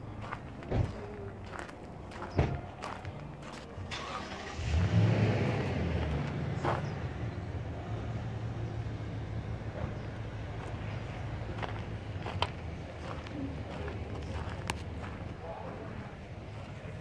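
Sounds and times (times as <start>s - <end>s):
footsteps on sandy ground: 0.0s - 3.8s, 6.0s - 7.0s, 9.8s - 17.0s
vehicle engine running: 0.0s - 17.0s.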